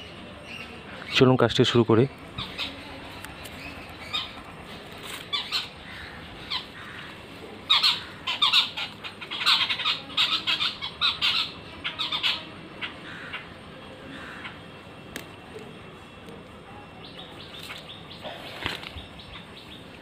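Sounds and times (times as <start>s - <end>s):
birds squawking: 0.0s - 14.8s.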